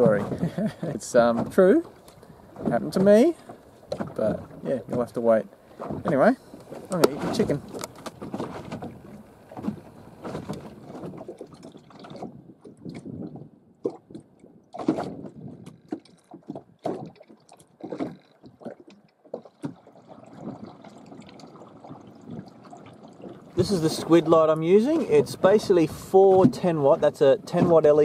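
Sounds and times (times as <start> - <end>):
water lapping against boat hull: 0.0 - 28.0
handling knocks and clicks: 5.9 - 8.9.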